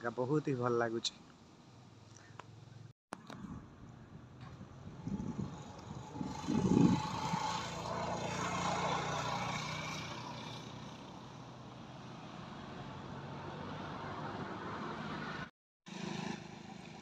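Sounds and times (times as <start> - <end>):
vehicle passing by: 4.4 - 17.0.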